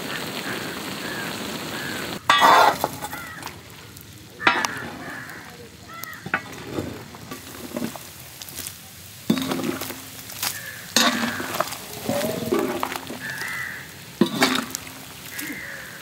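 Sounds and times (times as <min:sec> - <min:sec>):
meat sizzling in a wok: 0:00.0 - 0:16.0
spoon scraping a wok: 0:02.3 - 0:03.6, 0:04.4 - 0:05.2, 0:06.0 - 0:08.7, 0:09.3 - 0:15.6.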